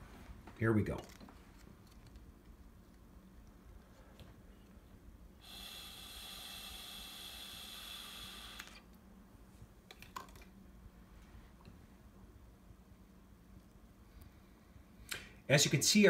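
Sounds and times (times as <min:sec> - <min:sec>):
breath blown through a straw: 0:05.4 - 0:08.4.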